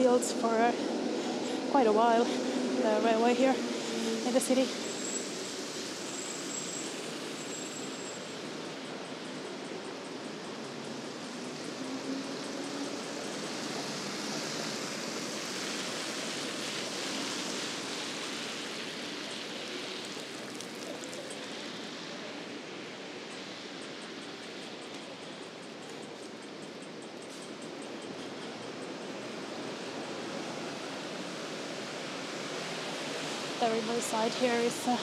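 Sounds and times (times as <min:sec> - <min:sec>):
traffic hiss on wet street: 0:00.0 - 0:35.0.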